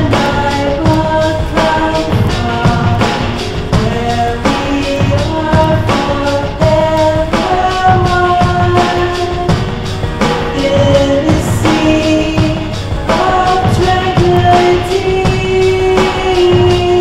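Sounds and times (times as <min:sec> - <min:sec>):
song with steady drum beat: 0:00.0 - 0:17.0.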